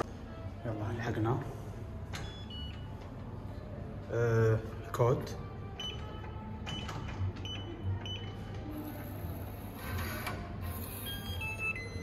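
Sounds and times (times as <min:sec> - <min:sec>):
keypad lock beeps: 0:02.1 - 0:03.0, 0:05.8 - 0:08.5, 0:10.8 - 0:12.0.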